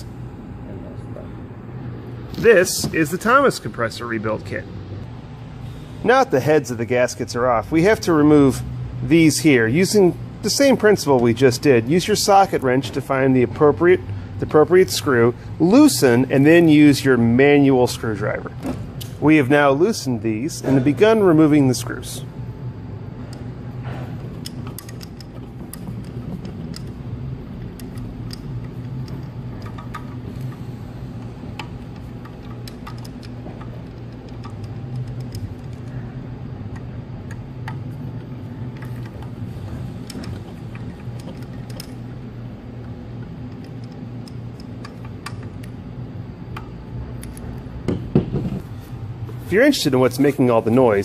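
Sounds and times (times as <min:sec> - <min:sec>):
steady low hum: 0:00.0 - 0:51.0
screwdriver metallic clicks: 0:24.4 - 0:27.0, 0:31.6 - 0:35.8.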